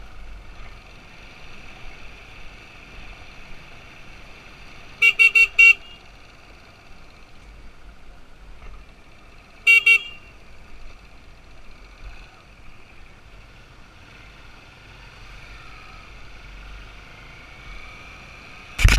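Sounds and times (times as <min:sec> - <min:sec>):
motorcycle horn beeps: 0:05.0 - 0:06.1, 0:09.6 - 0:10.3.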